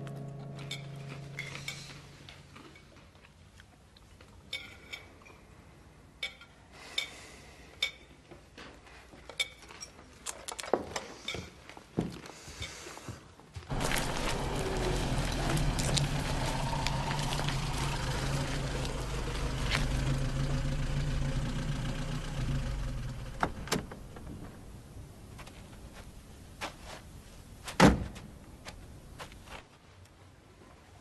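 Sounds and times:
car engine running: 13.7 - 23.7.

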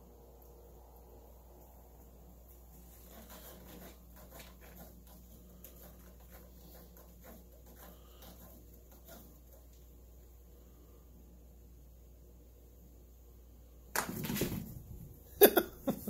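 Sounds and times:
cat scratching wicker: 2.5 - 10.2.

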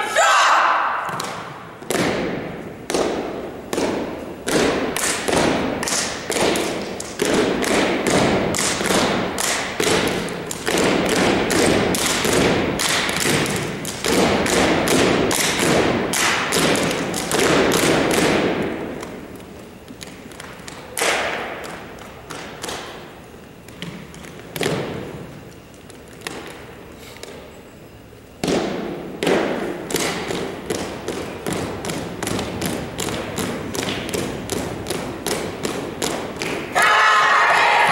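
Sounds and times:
hand slaps: 1.0 - 19.2, 20.0 - 23.0
rhythmic stomps on wooden floor: 1.1 - 25.4, 28.4 - 36.8.

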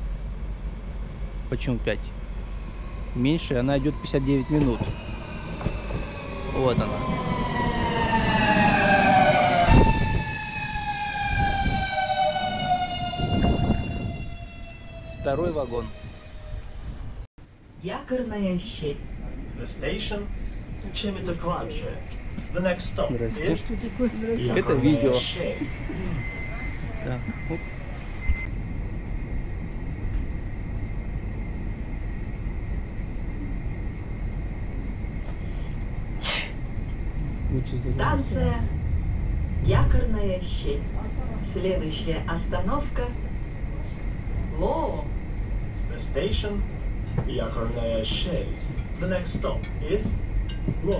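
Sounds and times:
train wheels rumbling: 0.0 - 50.9
faint high whine: 18.8 - 38.8.

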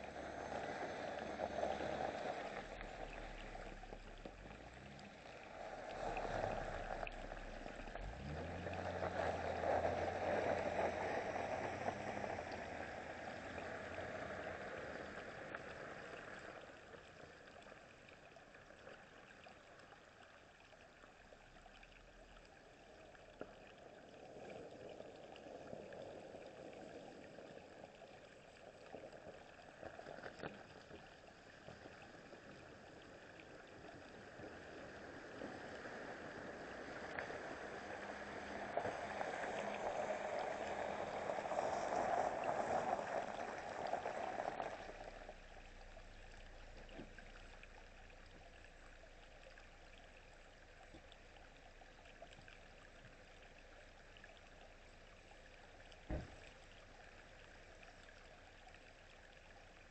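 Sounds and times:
tyres splashing through water: 0.0 - 16.4
creek running over rocks: 0.0 - 59.9.

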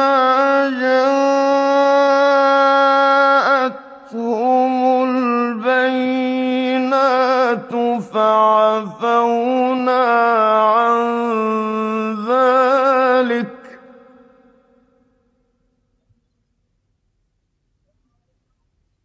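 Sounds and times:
man chanting: 0.0 - 14.8.

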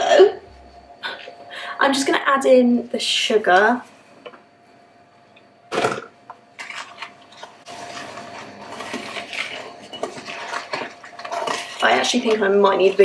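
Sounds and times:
wooden spoon scraping in a bowl: 6.7 - 13.0.

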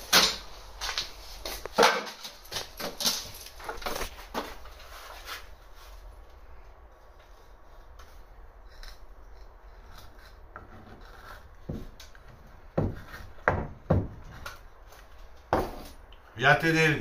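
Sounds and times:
irregular knocks and clatter: 11.6 - 14.6.

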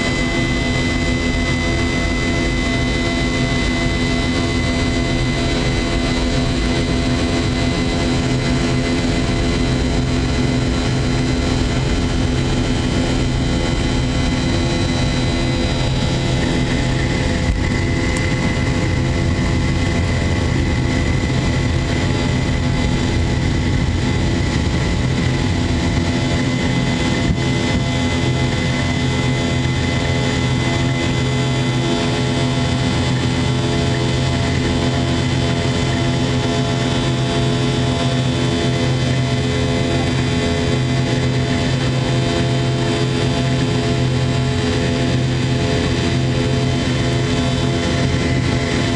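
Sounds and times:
takeoff roll rumble: 0.0 - 30.2
jet engine roar and whine: 0.0 - 48.9.

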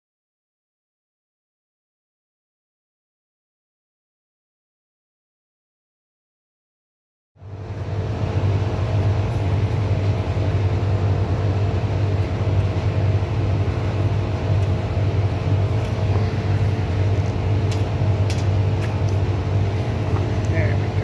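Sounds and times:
drain jetting machine humming: 7.4 - 21.0.

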